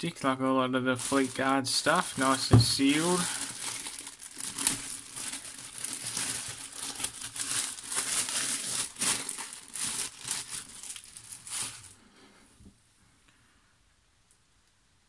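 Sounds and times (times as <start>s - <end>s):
plastic wrapping crinkling: 1.0s - 12.0s.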